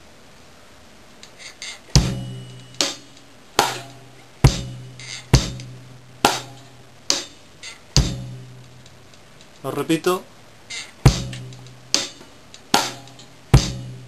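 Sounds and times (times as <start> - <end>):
hi-hat ticks: 1.2 - 9.6, 10.7 - 14.0
bass drum: 2.0 - 7.3, 7.9 - 8.9, 11.0 - 14.0.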